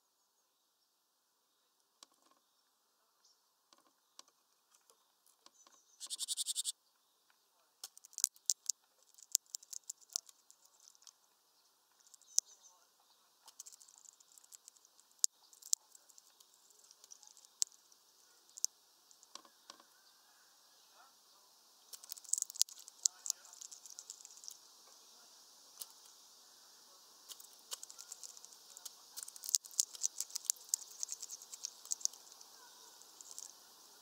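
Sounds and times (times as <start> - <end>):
bird pecking at wooden perch: 6.0 - 6.7, 7.8 - 11.2, 13.4 - 17.8, 18.5 - 19.9, 21.9 - 24.6, 27.3 - 33.6
fast rattle: 7.8 - 11.1, 13.5 - 17.9, 21.9 - 24.6, 27.3 - 33.6.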